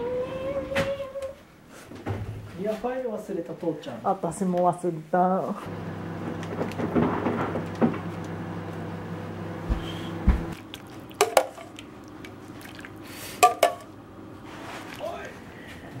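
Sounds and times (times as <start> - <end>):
soup pouring and dripping: 10.6 - 13.6.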